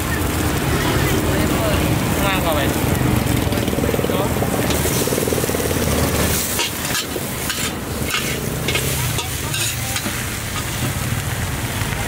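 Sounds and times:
metal spatula scraping wok: 0:04.6 - 0:05.4, 0:06.0 - 0:11.0
food sizzling in oil: 0:04.6 - 0:11.9.

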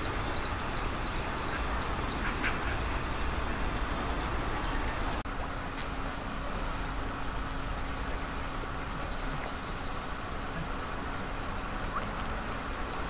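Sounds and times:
ducklings peeping: 0:00.0 - 0:02.9.

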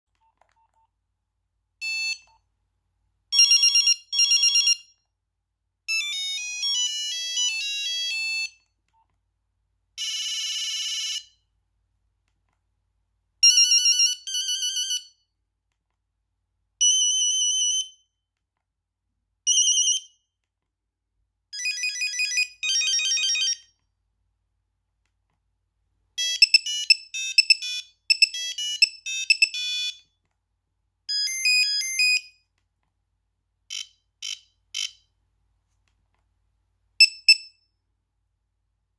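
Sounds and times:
electronic ringtone beeps: 0:26.2 - 0:30.0.

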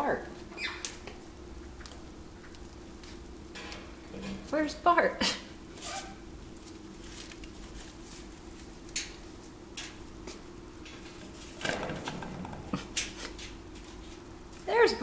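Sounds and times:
faint steady hum: 0:00.0 - 0:15.0
paper rustle: 0:05.8 - 0:08.8.

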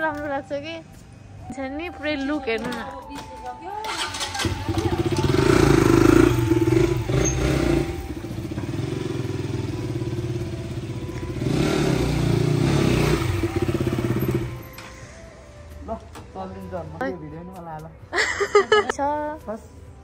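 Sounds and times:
motorcycle engine revving: 0:03.8 - 0:14.8.

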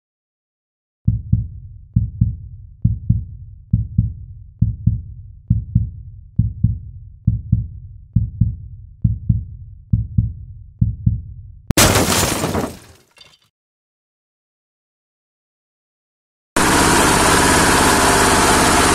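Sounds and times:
deep double thumps: 0:01.1 - 0:12.1.

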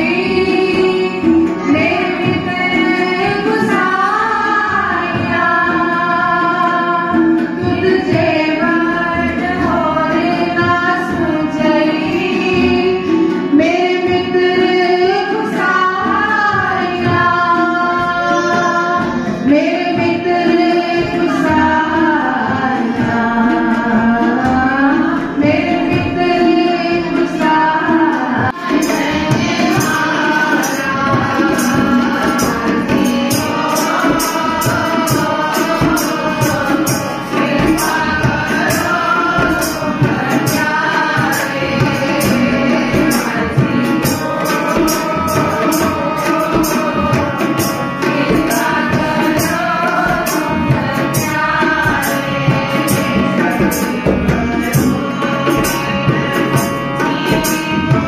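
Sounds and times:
harmonium: 0:00.0 - 0:58.0
women singing a hymn: 0:00.0 - 0:58.0
tabla strokes: 0:27.1 - 0:58.0.

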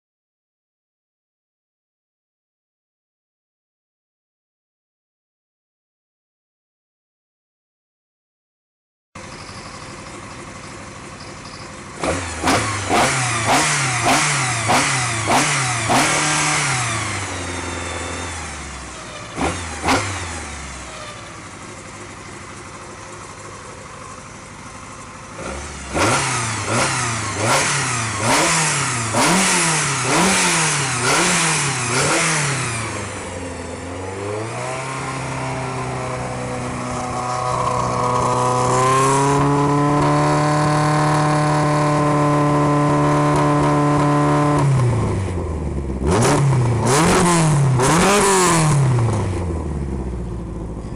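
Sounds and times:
race engine revving: 0:12.0 - 0:21.2, 0:25.4 - 0:45.4, 0:46.0 - 0:49.6.

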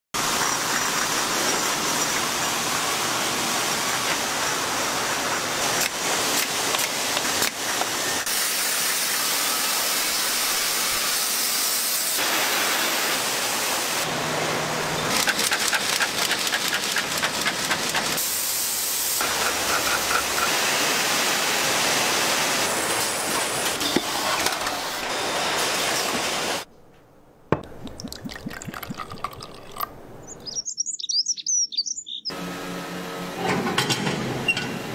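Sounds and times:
bottling machinery hissing and clattering: 0:00.2 - 0:14.2, 0:14.9 - 0:26.7.

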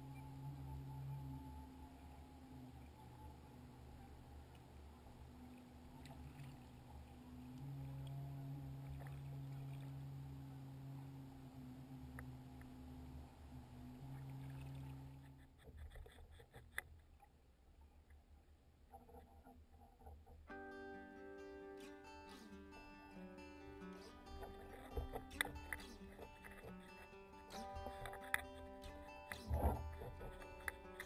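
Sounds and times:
cable humming in water: 0:00.0 - 0:16.1, 0:22.3 - 0:31.0
faint clicks: 0:02.0 - 0:10.0, 0:11.9 - 0:18.2, 0:23.9 - 0:31.0.

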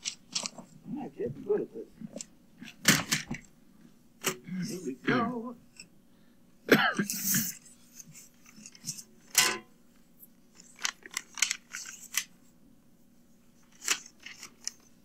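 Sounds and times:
paper rustling: 0:00.0 - 0:00.8, 0:10.5 - 0:12.4, 0:13.6 - 0:15.0.

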